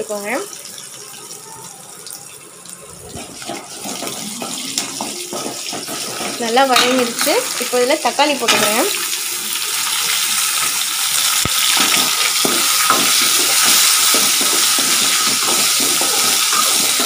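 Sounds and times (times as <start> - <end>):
food sizzling in hot oil: 0.0 - 17.0
spoon scraping metal pan: 3.2 - 7.4
spoon tapping pan: 3.2 - 7.4, 11.4 - 17.0.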